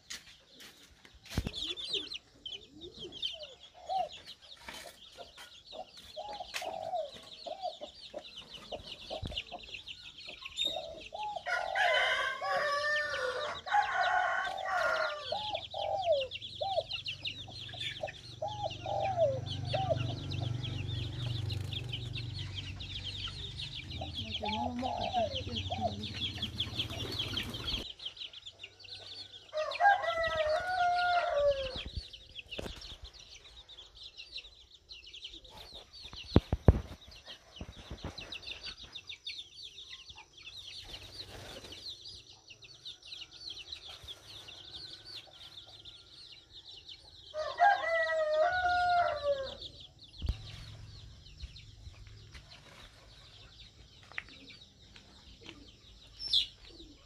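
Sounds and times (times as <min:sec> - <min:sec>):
chickens clucking: 0:00.0 - 0:57.0
rooster crowing: 0:11.4 - 0:15.8, 0:29.3 - 0:31.8, 0:47.3 - 0:49.7.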